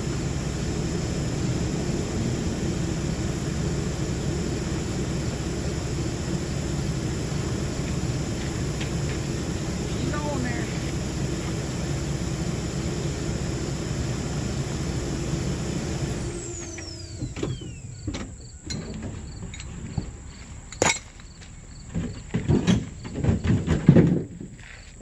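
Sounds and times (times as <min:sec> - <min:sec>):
engine shutting off with whine: 0:00.0 - 0:20.8
vehicle engine running: 0:00.0 - 0:22.4
straps clanking onto gravel: 0:18.7 - 0:25.0.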